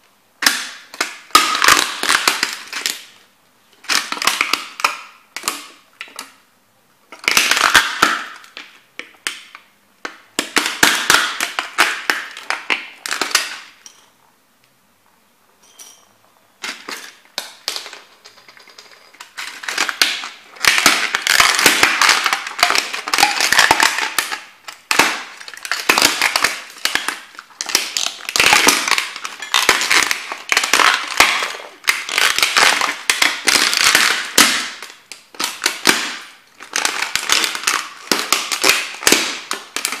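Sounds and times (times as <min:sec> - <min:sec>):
plastic cracking under boots: 0:00.4 - 0:03.2, 0:03.8 - 0:06.4, 0:07.1 - 0:13.8, 0:16.6 - 0:40.0.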